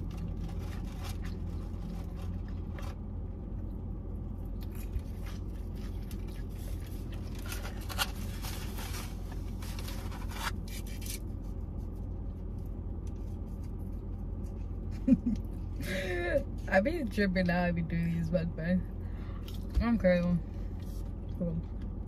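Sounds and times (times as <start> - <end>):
paper packaging rustling: 0.0 - 3.0, 7.1 - 11.3
low hum inside car cabin: 0.0 - 22.0.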